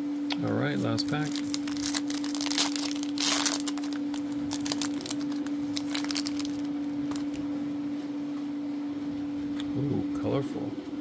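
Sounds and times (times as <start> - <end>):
low hum: 0.0 - 9.6
foil wrapper tearing and crinkling: 0.9 - 7.4.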